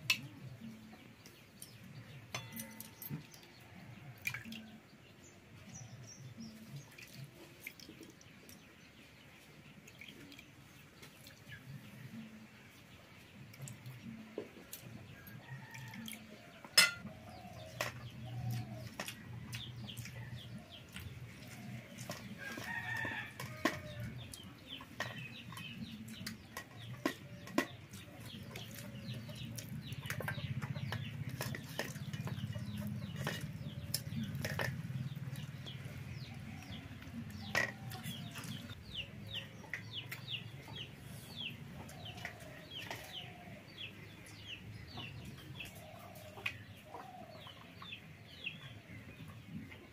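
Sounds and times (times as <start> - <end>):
metal ladle clinking steel bowls: 1.6 - 3.6, 16.7 - 20.5, 36.2 - 38.7
plates and tumblers clinking: 2.3 - 3.2, 16.7 - 17.0
chickens clucking: 5.6 - 49.9.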